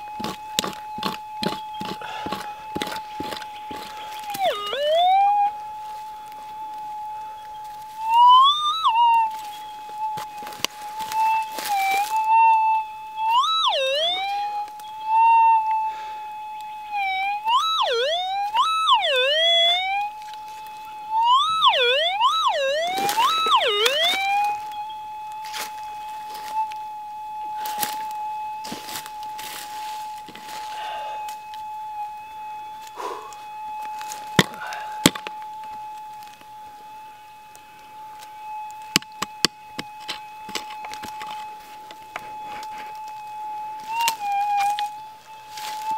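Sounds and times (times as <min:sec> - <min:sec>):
metal detector target signals: 0:00.0 - 0:05.6, 0:33.0 - 0:35.9, 0:38.2 - 0:45.9
metal detector threshold hum: 0:00.0 - 0:45.9
pick chopping into dry soil: 0:00.2 - 0:04.0.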